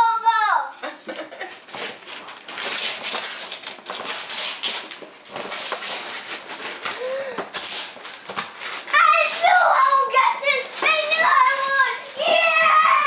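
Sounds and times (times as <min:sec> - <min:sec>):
wrapping paper tearing and crumpling: 0:01.5 - 0:13.0.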